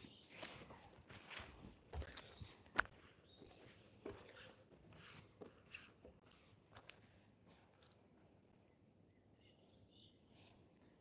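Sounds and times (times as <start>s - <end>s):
bird chirp: 0.0s - 0.6s, 8.0s - 10.4s
soft footsteps on wooden planks: 0.0s - 8.0s.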